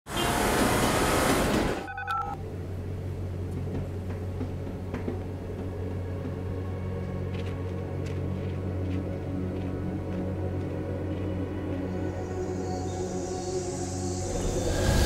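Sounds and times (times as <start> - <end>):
short electronic tones: 1.8 - 2.4
steady low drone: 2.4 - 15.0
loud rushing noise: 13.8 - 15.0.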